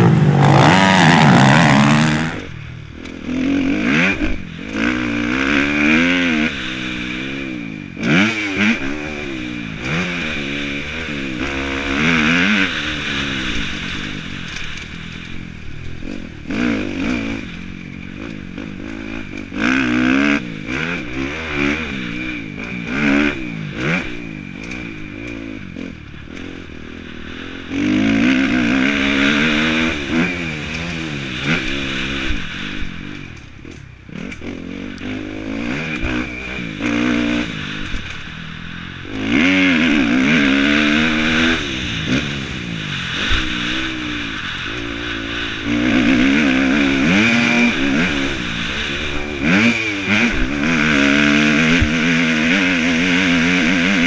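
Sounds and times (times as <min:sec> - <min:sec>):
motocross bike engine revving: 0:00.0 - 0:54.0.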